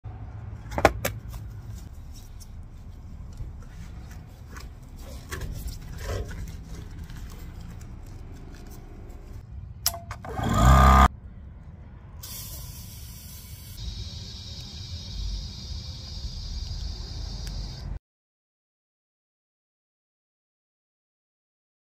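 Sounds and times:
compressed air rush: 12.2 - 17.4
air hissing into test ball: 12.2 - 18.0.

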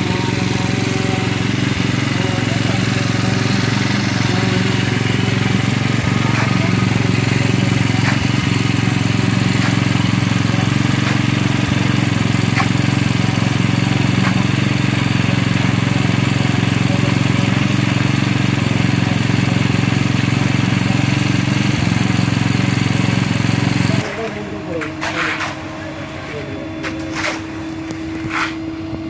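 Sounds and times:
engine droning steadily: 0.0 - 29.0.

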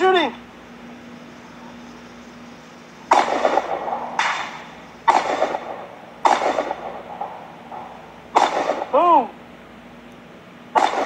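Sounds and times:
carbine gunshots: 3.1 - 9.1, 10.7 - 11.0.

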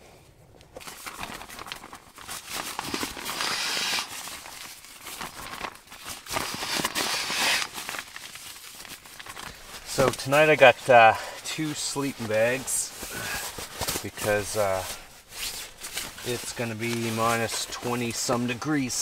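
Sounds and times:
nylon sleeping bag rustling: 0.8 - 18.8.

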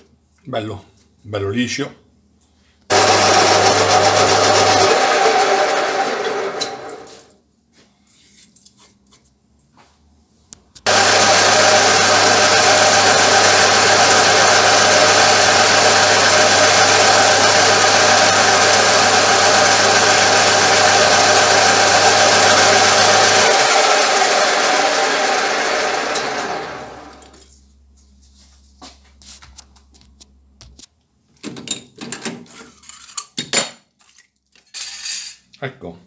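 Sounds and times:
metal lathe running: 2.9 - 7.2, 10.9 - 27.4.

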